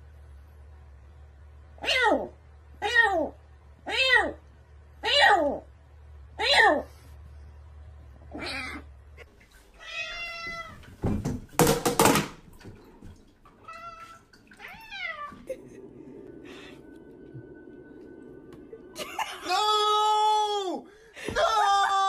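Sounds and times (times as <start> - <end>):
cats meowing: 9.8 - 10.8, 13.6 - 15.5.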